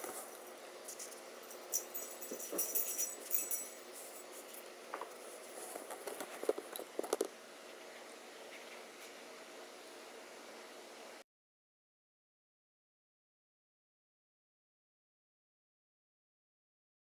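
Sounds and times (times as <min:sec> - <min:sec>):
dog tags jingling: 0:00.9 - 0:04.5.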